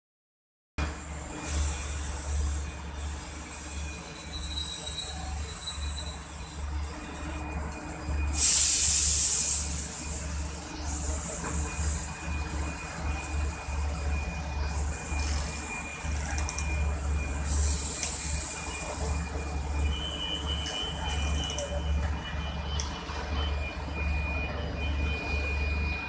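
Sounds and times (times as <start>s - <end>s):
air hissing: 8.3s - 10.3s.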